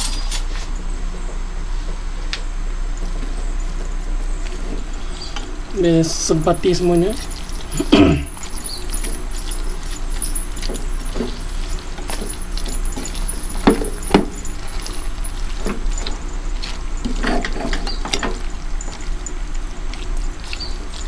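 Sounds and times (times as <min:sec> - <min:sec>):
spatula scraping in pot: 0:06.8 - 0:21.0.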